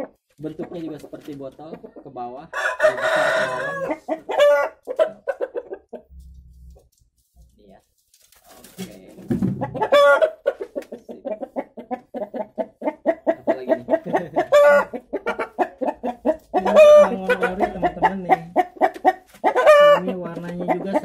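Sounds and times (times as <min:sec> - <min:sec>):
hen clucking: 0:00.0 - 0:06.9, 0:09.2 - 0:21.0
hen drawn-out calls: 0:14.5 - 0:20.2.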